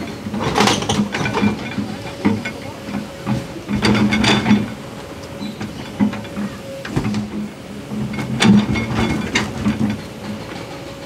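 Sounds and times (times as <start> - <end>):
diesel engine humming: 0.0 - 11.0
rocks clanking into truck bed: 5.6 - 10.4.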